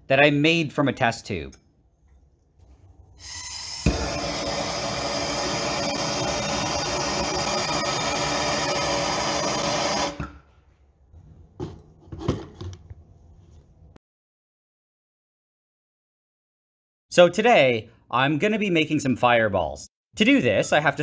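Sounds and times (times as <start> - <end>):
gas torch flame: 3.2 - 10.3.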